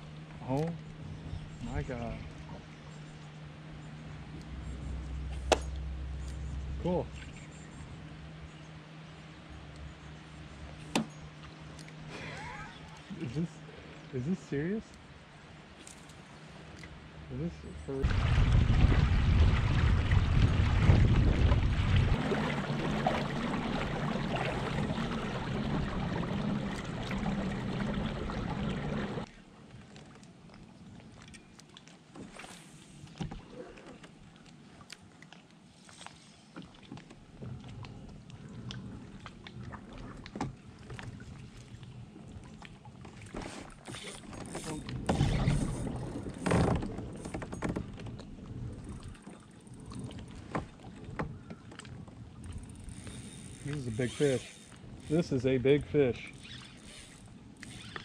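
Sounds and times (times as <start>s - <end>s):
water lapping against plastic hull: 17.9s - 58.0s
wind on microphone: 18.0s - 29.2s.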